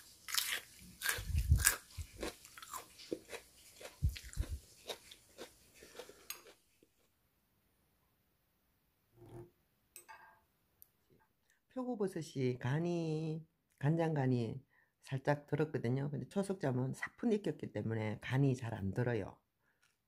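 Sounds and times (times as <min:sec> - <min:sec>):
crunching of cooked tubers: 0:00.0 - 0:07.0.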